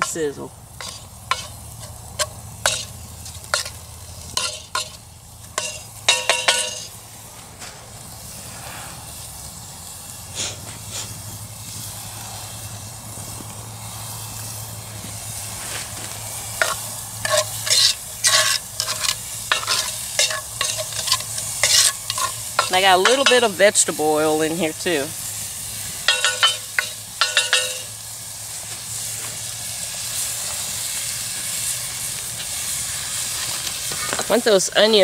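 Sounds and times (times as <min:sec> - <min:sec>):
onions sizzling in oil: 0:00.0 - 0:35.0
spoon scraping a pot: 0:00.8 - 0:05.0, 0:05.6 - 0:06.9, 0:16.6 - 0:23.5.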